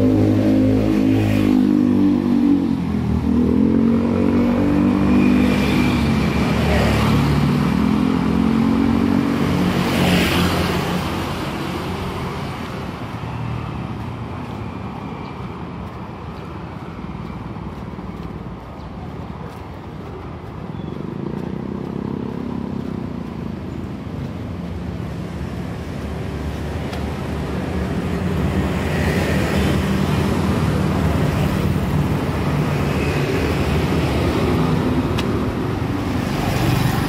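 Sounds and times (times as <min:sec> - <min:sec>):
motorcycle engine rumbling: 0:18.4 - 0:32.8.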